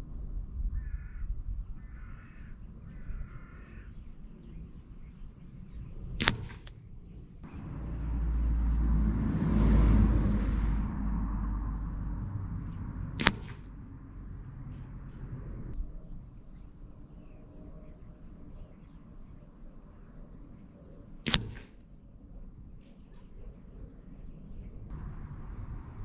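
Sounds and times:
wind buffeting microphone: 0.0s - 26.0s
air rifle pellets striking target: 6.2s - 6.8s, 12.6s - 14.0s, 21.3s - 21.9s.

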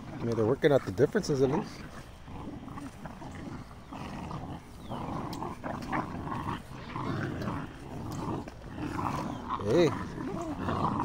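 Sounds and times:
puppies growling: 0.0s - 11.0s.

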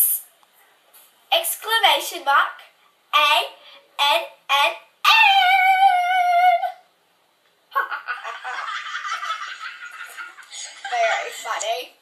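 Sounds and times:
child giggling: 7.7s - 11.6s.

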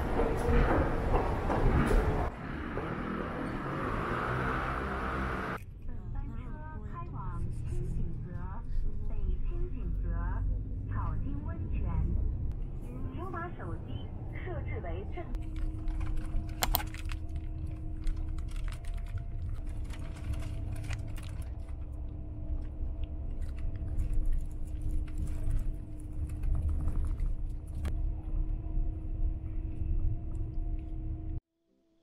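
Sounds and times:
bus engine and road rumble: 0.0s - 31.4s
constant hum: 5.1s - 31.4s
small clicks and rattles: 15.4s - 21.9s.

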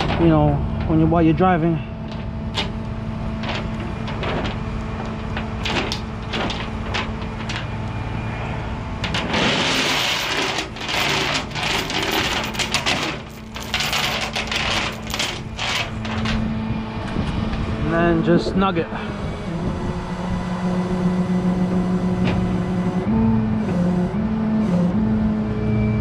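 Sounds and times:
engine hum: 0.0s - 26.0s
chain rattling on steel deck: 9.0s - 16.4s.

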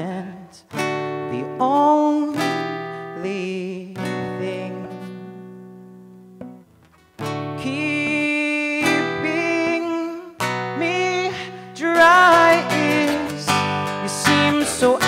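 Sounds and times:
man singing: 0.0s - 5.5s, 7.4s - 15.0s
acoustic guitar strumming: 0.0s - 15.0s.

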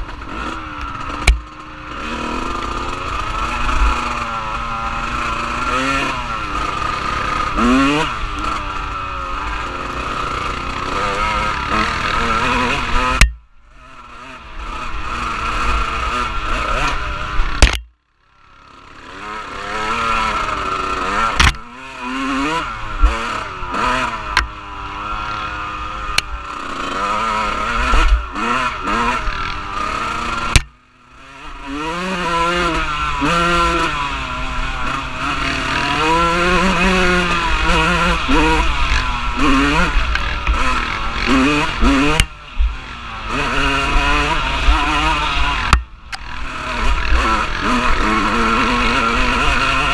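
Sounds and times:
off-road vehicle engine revving: 0.0s - 17.9s, 18.5s - 49.9s
sharp click: 17.6s - 17.9s, 21.4s - 21.7s, 30.5s - 30.8s.

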